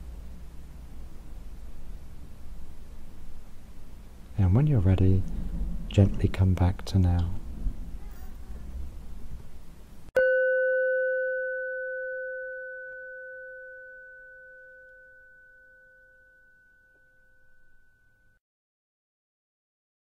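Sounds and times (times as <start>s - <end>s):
chime ringing: 10.2s - 18.4s.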